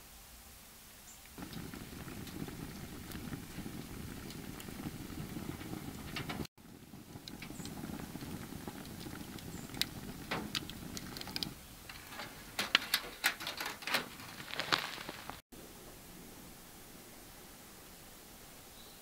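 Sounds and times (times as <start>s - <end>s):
wood fire crackling and popping: 1.4s - 15.4s
low rush of burning: 1.4s - 18.6s.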